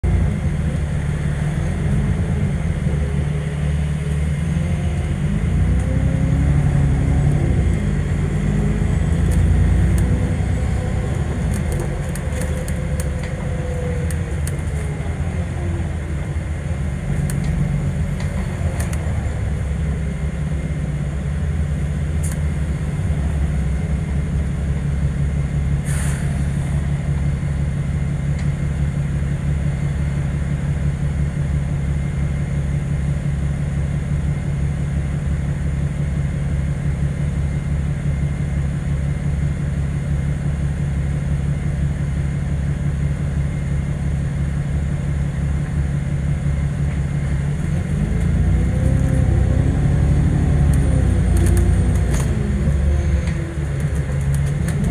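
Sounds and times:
bus engine drone: 0.0 - 54.9
engine whine rising and falling: 0.1 - 20.7, 47.2 - 54.9.

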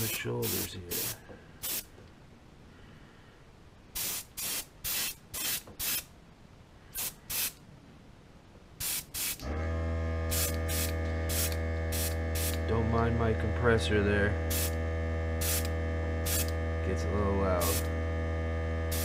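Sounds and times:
air compressor humming: 0.0 - 1.9, 8.8 - 13.5, 14.3 - 19.0
airbrush spraying hiss: 0.0 - 1.9, 4.0 - 6.1, 7.0 - 7.6, 8.8 - 9.4, 10.3 - 12.6, 14.5 - 14.8, 15.4 - 15.7, 16.3 - 16.5, 17.6 - 17.9.

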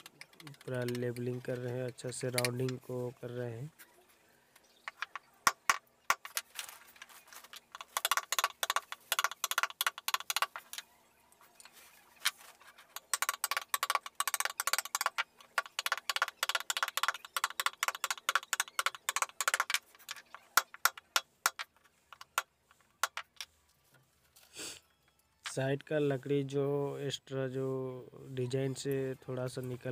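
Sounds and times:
chisel tapping into wood: 4.8 - 6.4, 7.7 - 10.6, 13.0 - 23.4.

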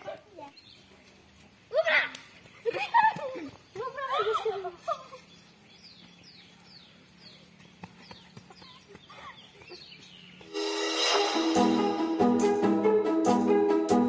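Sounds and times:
rising whoosh sound effect: 10.5 - 13.1
outro music with held notes: 10.5 - 14.0.

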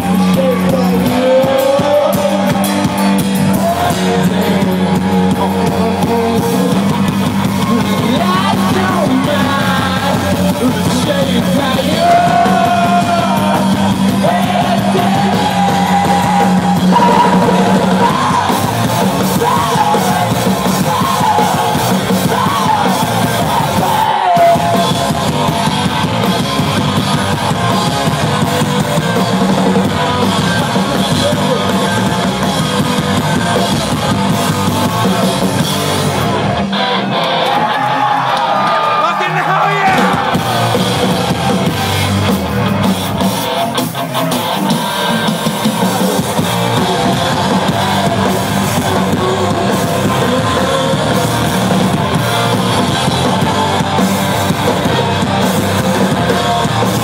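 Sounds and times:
person singing and yelling: 0.0 - 25.5, 38.9 - 41.1, 46.4 - 53.8
electric guitar: 0.0 - 57.0
live rock band playing: 0.0 - 57.0.

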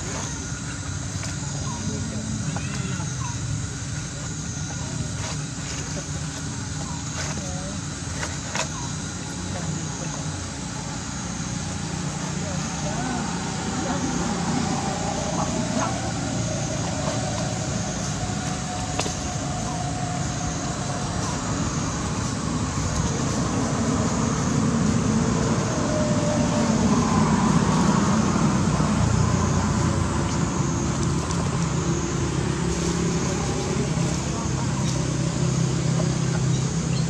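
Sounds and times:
road traffic rumble: 0.0 - 37.0.

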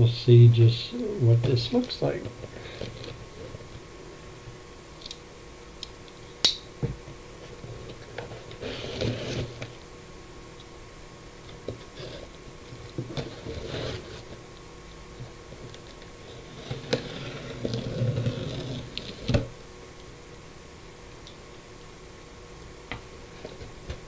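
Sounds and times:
faint steady hum: 0.0 - 24.0
rustling and scraping: 1.4 - 3.9, 7.4 - 9.8, 11.5 - 14.5, 15.2 - 19.5.

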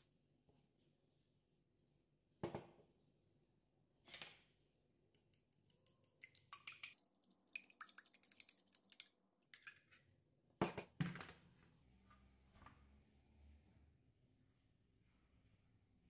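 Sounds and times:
fork clinking in glass bowl: 9.6 - 10.0.

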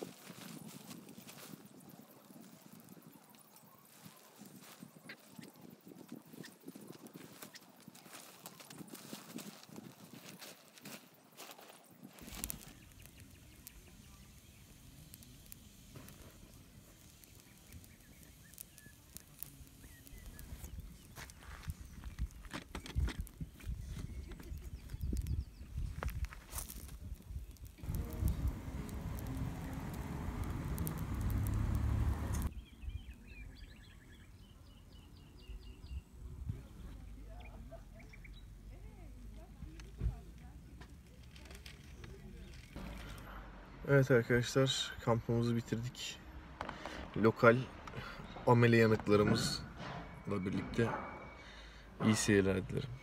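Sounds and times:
sausages sizzling on grill: 12.0 - 22.0, 24.5 - 32.5
fire crackling and popping: 12.0 - 32.5, 39.8 - 50.8
small bird chirping: 12.2 - 26.6
low steady rumble: 27.8 - 32.5.

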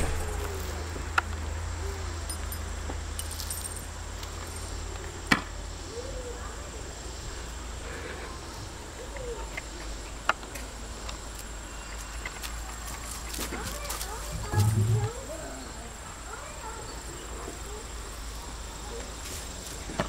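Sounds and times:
low steady rumble: 14.2 - 15.9.

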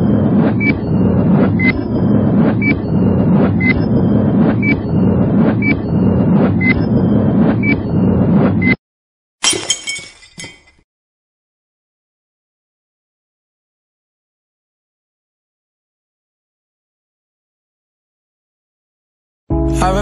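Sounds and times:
steady low rumble: 0.0 - 8.8.

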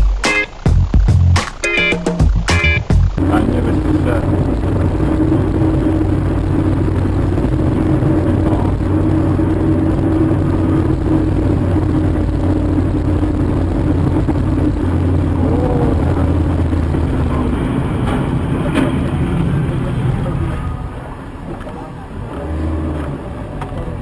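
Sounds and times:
car engine: 0.0 - 24.0
road noise: 0.0 - 24.0
short sharp clicks: 1.4 - 1.8.

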